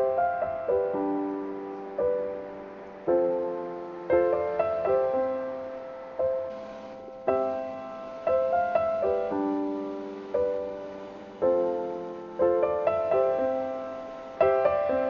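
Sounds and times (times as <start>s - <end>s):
slow solo piano: 0.0s - 15.0s.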